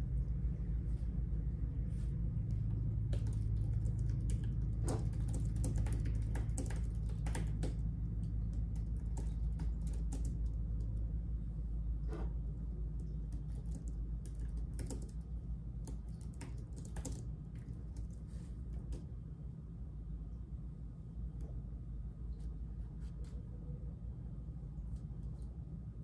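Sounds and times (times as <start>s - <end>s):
steady low hum: 0.0s - 26.0s
keyboard typing clicks: 3.1s - 11.0s, 13.0s - 18.2s.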